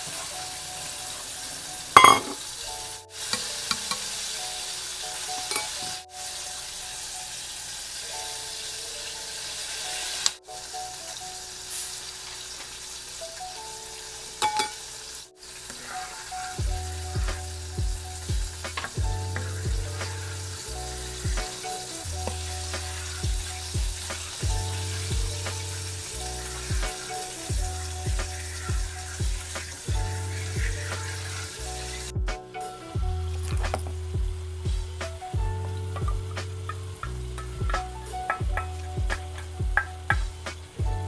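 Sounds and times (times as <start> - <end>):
hip-hop background music: 0.0 - 7.4, 15.6 - 41.0
sauce sizzling in a frying pan: 0.0 - 40.8.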